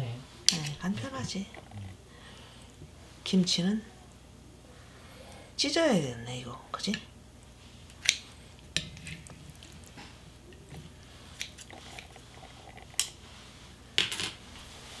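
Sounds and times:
scissors snipping food: 0:11.4 - 0:12.2.

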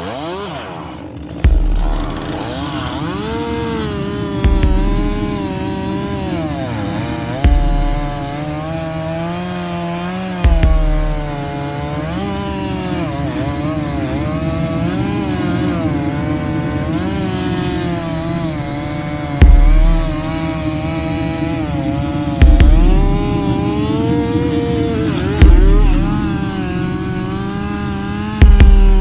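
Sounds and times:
chainsaw cutting tree: 0:00.0 - 0:29.0
sudden low thumps: 0:01.4 - 0:02.4, 0:04.4 - 0:05.6, 0:07.4 - 0:08.5, 0:10.4 - 0:11.6, 0:17.9 - 0:21.0, 0:22.4 - 0:23.8, 0:25.3 - 0:27.4, 0:28.4 - 0:29.0.

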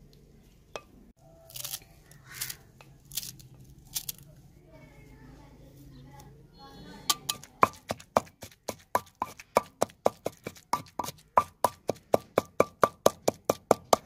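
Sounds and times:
pestle knocking in stone mortar: 0:07.2 - 0:14.0.

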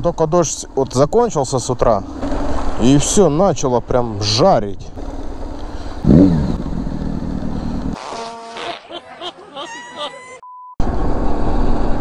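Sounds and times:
motorcycle riding noise: 0:00.0 - 0:08.1.

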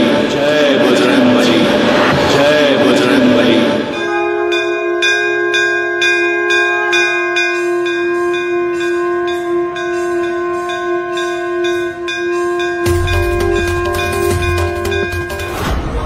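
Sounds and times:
steady held tone: 0:00.0 - 0:15.7
ringing bell strikes: 0:03.9 - 0:15.7.

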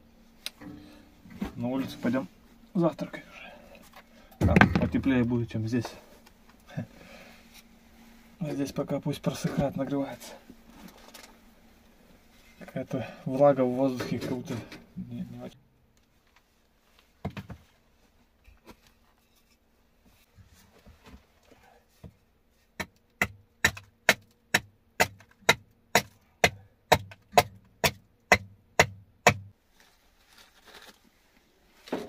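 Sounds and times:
quiet knocks and rustles: 0:16.1 - 0:22.3
hatchet chopping kindling: 0:22.8 - 0:29.5.

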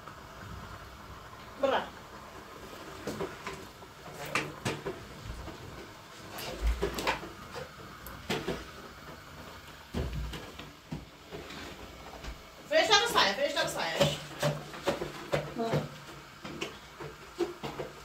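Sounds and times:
objects knocking and clicking: 0:06.4 - 0:12.4, 0:13.6 - 0:18.0.

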